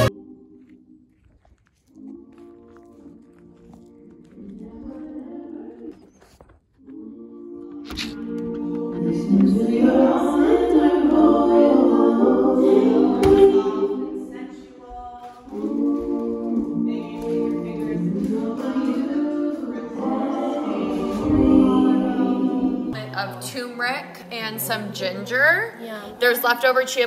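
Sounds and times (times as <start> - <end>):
choir singing long notes: 0.0 - 1.0, 2.0 - 6.0, 6.8 - 23.2.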